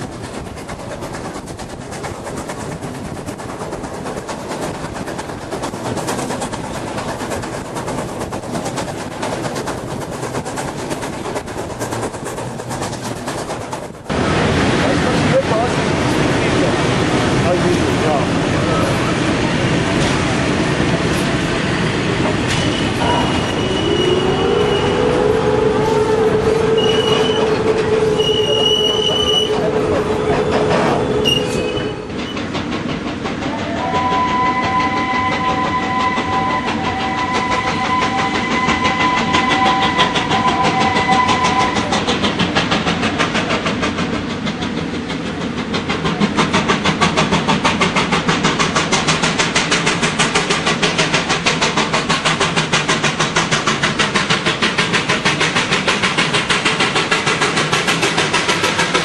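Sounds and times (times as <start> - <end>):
steam locomotive exhaust beats: 0.0 - 59.0
electric locomotives high tone: 22.2 - 32.5, 33.5 - 41.9
steam locomotive whistle: 22.6 - 32.3, 33.6 - 41.9.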